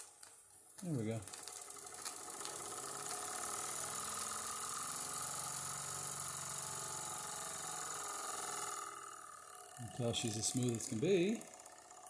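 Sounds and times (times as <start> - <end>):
model steam engine chuffing: 0.8 - 12.0.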